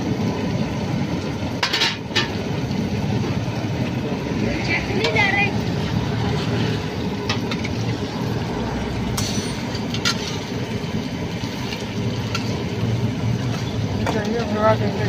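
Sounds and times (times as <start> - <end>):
metal spatula scraping pan: 9.2 - 10.6.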